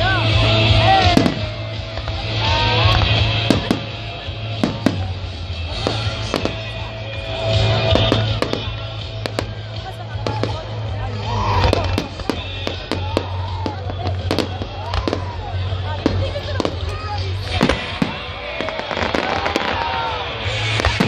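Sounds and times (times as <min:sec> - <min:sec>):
fireworks bursting with bangs: 0:00.0 - 0:21.0
music playing: 0:00.0 - 0:21.0.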